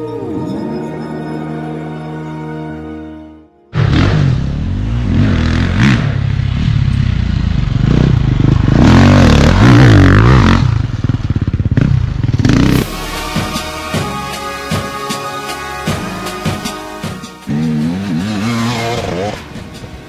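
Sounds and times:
dirt bike engine revving: 0:03.8 - 0:13.8, 0:17.1 - 0:19.9.

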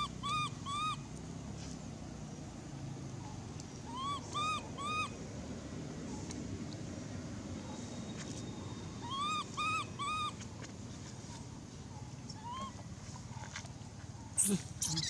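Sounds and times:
infant monkey whimpering coos: 0:00.0 - 0:01.0, 0:03.9 - 0:05.1, 0:09.0 - 0:10.4, 0:12.4 - 0:12.8, 0:14.4 - 0:15.0.

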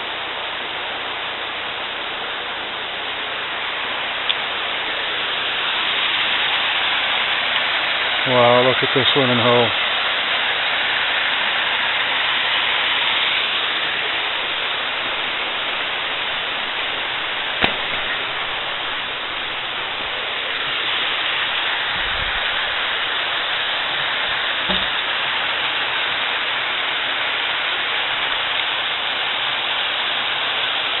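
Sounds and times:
waterfall rushing over rocks: 0:00.0 - 0:31.0
sharp click: 0:17.6 - 0:18.2.

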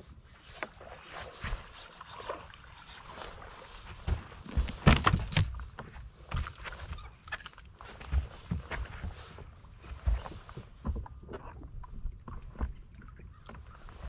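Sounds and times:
soft knocks and rustles: 0:03.8 - 0:11.4
fish thumping on boat deck: 0:04.1 - 0:07.3.

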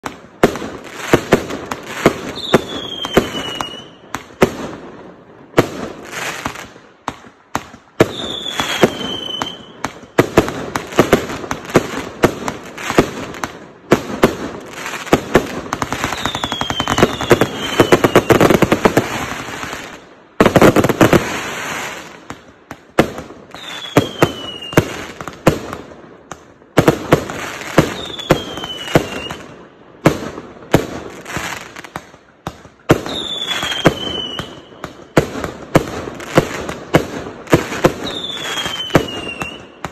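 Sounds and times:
firework bangs and bursts: 0:00.0 - 0:39.9
falling firework whistles: 0:01.8 - 0:04.1, 0:08.0 - 0:10.0, 0:15.9 - 0:20.0, 0:23.5 - 0:25.2, 0:27.4 - 0:29.5, 0:33.0 - 0:34.8, 0:37.6 - 0:39.9.

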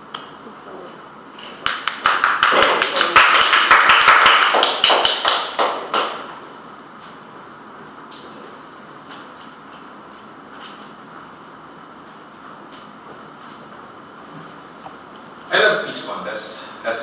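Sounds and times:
audience clapping: 0:01.4 - 0:06.4.

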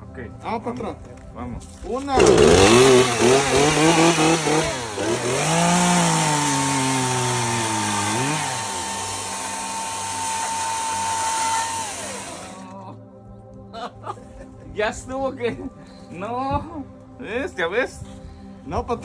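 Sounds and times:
chainsaw cutting wood: 0:02.1 - 0:12.7
electric chainsaw whine: 0:02.1 - 0:12.7.

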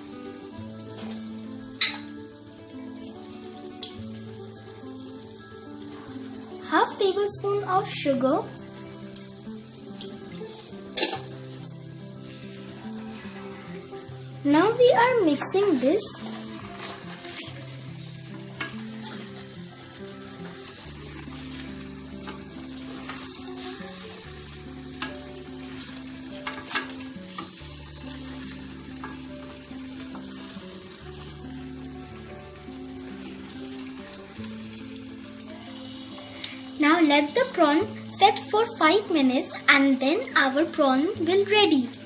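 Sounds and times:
prawns sizzling in pan: 0:00.0 - 0:42.0
spatula scraping and knocking pan: 0:26.4 - 0:27.6.

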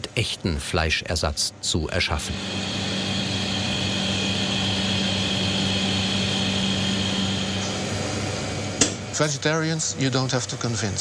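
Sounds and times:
machine droning hum: 0:00.0 - 0:11.0.

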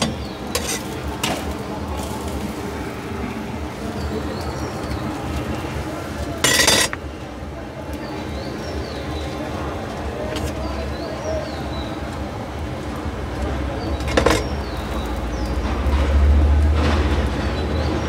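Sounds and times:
metal spatula scraping a griddle: 0:00.0 - 0:02.2, 0:06.4 - 0:07.0.

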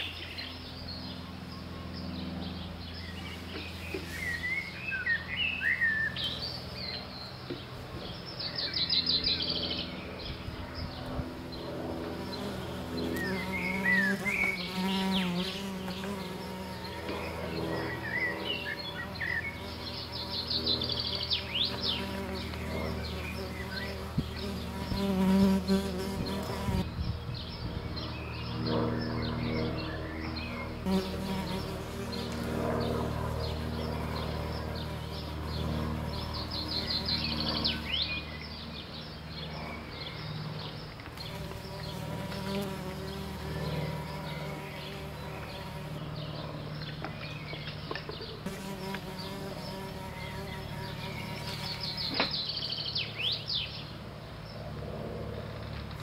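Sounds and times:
chirping bird-like glides: 0:00.0 - 0:56.0
insect-like buzzing drone: 0:00.0 - 0:56.0.

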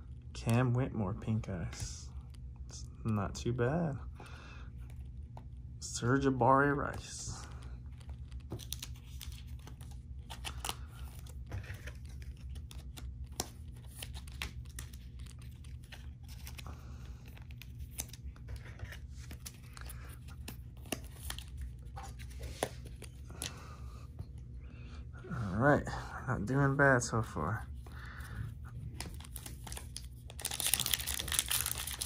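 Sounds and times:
low steady hum: 0:00.0 - 0:32.0
foil wrappers crinkling and tearing: 0:29.1 - 0:32.0.

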